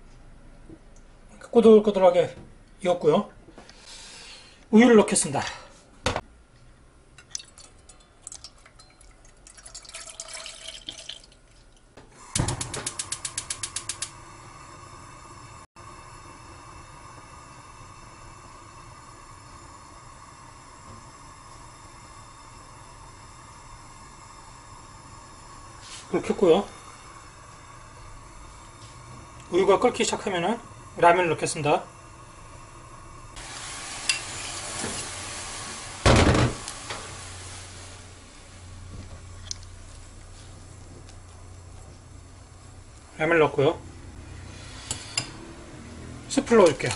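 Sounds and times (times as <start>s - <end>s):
gas burner hissing: 3.6s - 6.2s, 12.0s - 46.9s.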